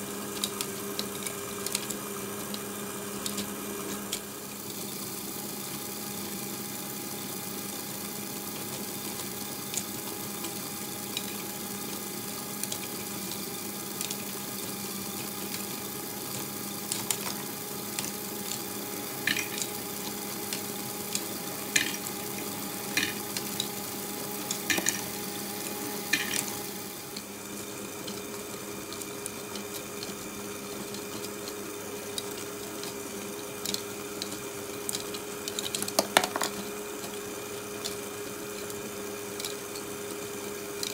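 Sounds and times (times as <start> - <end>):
electric motor and gears humming: 0.0 - 40.9
plastic parts rattling: 33.6 - 36.7.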